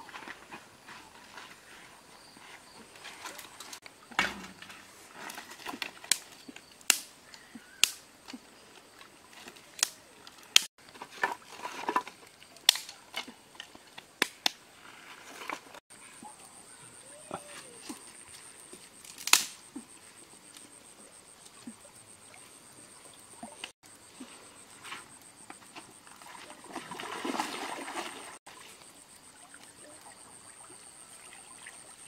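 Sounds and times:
sharp knocks and snaps: 0:05.8 - 0:07.1, 0:07.8 - 0:08.4.

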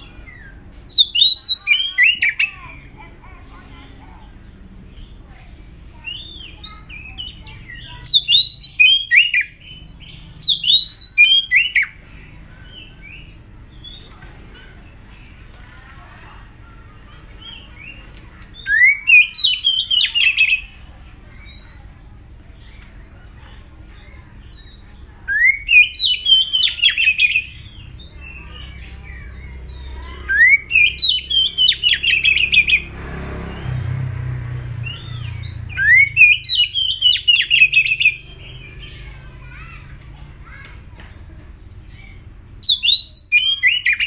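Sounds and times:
bird calling: 0:00.0 - 0:04.4, 0:05.9 - 0:32.9, 0:34.8 - 0:39.8, 0:40.4 - 0:44.0
low rumbling noise: 0:27.4 - 0:37.0.

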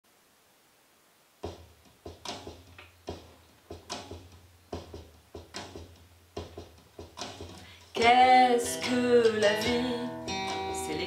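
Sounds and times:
hand-played percussion beats: 0:01.4 - 0:08.1.

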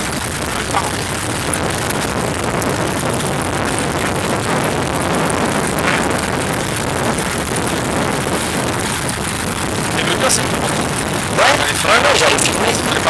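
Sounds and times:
moving vehicle running noise: 0:00.0 - 0:13.0
wind on microphone: 0:00.0 - 0:13.0.

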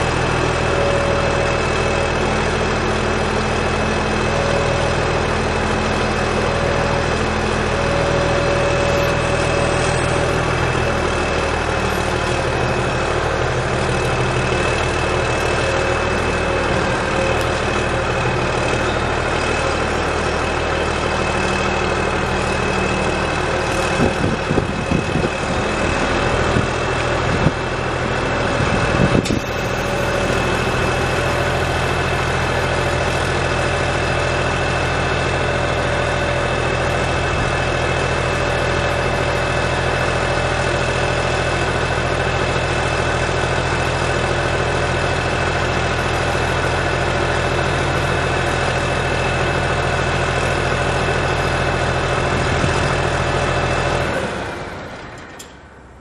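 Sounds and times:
diesel engine idling: 0:00.0 - 0:56.0
rough uneven mechanical noise: 0:00.2 - 0:55.6
hydraulic whine: 0:02.0 - 0:35.3.

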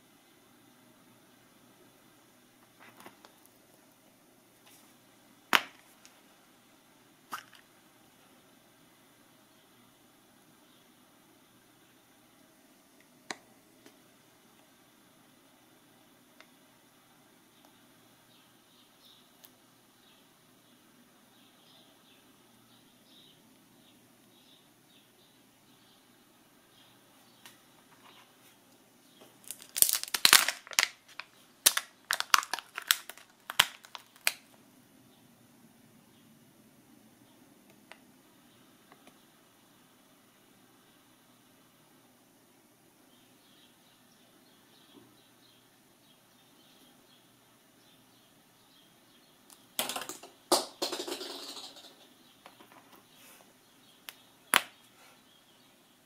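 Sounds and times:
plastic packaging crackling: 0:29.4 - 0:34.5
crinkly wrapping and plastic clicks: 0:29.4 - 0:34.6
plastic capsule snapping open: 0:29.5 - 0:34.4.

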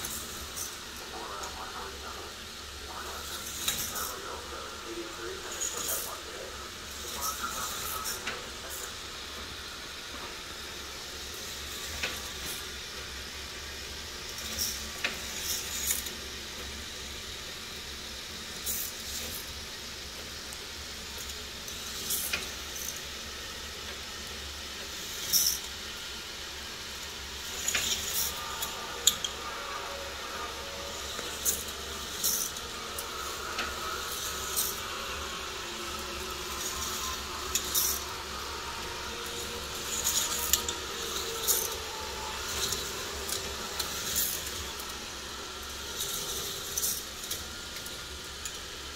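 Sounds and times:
toy roller coaster motor whir: 0:00.0 - 0:48.9
cars rattling on plastic track: 0:03.2 - 0:04.6, 0:05.5 - 0:09.0, 0:21.1 - 0:23.1, 0:24.8 - 0:25.9, 0:27.2 - 0:48.8.

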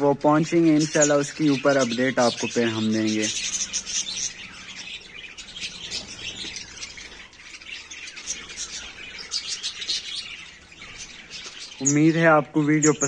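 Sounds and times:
budgerigars chirping: 0:00.0 - 0:13.0.

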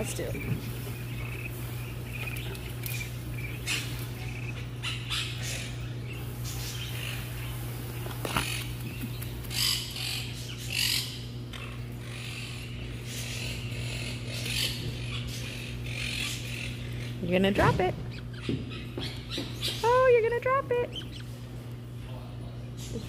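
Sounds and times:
parrots chirping and calling: 0:00.0 - 0:21.7
steady low hum: 0:00.0 - 0:23.0.

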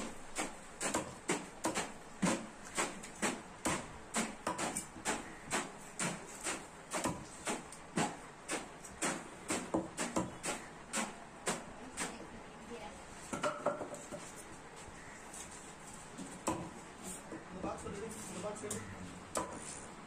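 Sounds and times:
knife chopping on wooden block: 0:00.4 - 0:12.2, 0:16.2 - 0:17.4, 0:18.7 - 0:19.8.

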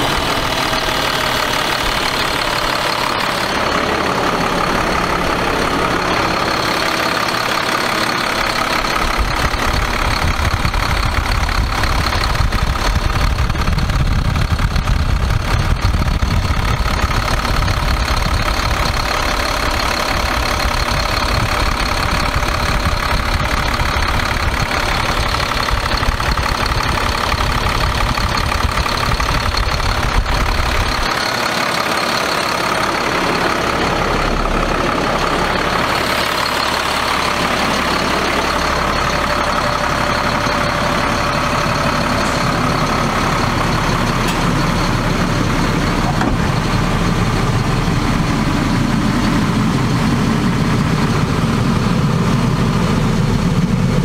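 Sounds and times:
deep low rumble: 0:00.0 - 0:31.3
diesel engine idling: 0:00.0 - 0:54.0.

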